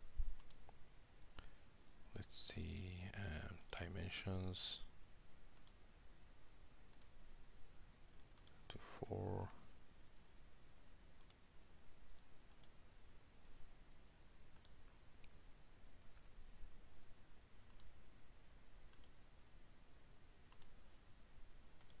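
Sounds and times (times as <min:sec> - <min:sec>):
faint room hiss: 0:00.0 - 0:22.0
computer mouse clicking: 0:00.4 - 0:00.8, 0:05.6 - 0:05.8, 0:06.9 - 0:07.1, 0:08.2 - 0:08.6, 0:11.2 - 0:11.4, 0:12.5 - 0:12.8, 0:14.5 - 0:15.3, 0:16.0 - 0:16.4, 0:17.7 - 0:17.9, 0:18.9 - 0:19.2, 0:20.5 - 0:20.8, 0:21.8 - 0:22.0.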